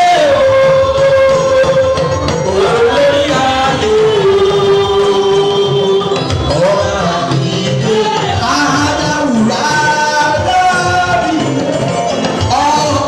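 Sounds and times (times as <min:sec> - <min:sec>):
steady drum beat: 0:00.0 - 0:13.0
worship singing: 0:00.0 - 0:13.0.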